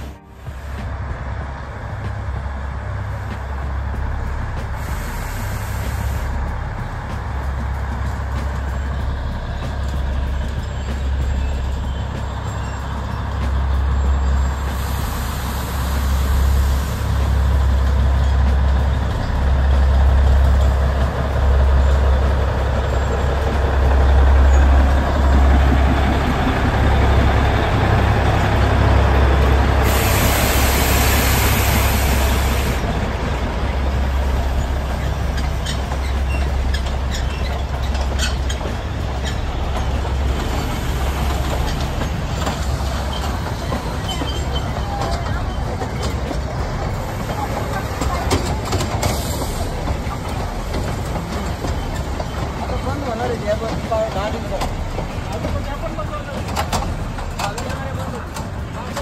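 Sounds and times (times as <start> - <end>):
diesel locomotive rumbling: 0.0 - 59.0
train coaches clicking: 0.0 - 59.0
hiss: 4.6 - 8.8, 13.5 - 19.0, 29.7 - 45.0, 47.0 - 52.6.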